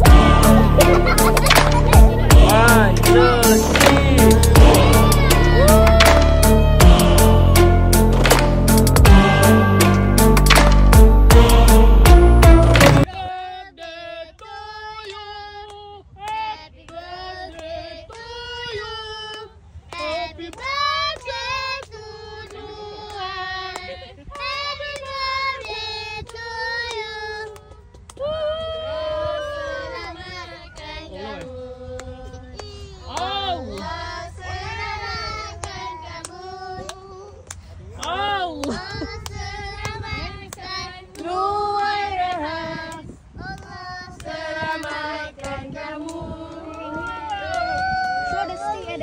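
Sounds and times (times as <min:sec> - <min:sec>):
children singing: 0:00.0 - 0:13.1
children and adults singing: 0:00.0 - 0:28.4, 0:29.0 - 0:47.7
hand claps: 0:00.8 - 0:02.7, 0:03.5 - 0:04.8, 0:05.8 - 0:07.0, 0:08.1 - 0:09.1, 0:10.3 - 0:11.0, 0:12.6 - 0:13.2.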